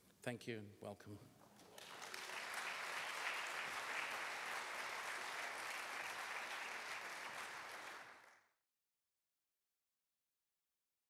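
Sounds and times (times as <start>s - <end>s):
audience applauding: 1.6s - 8.5s.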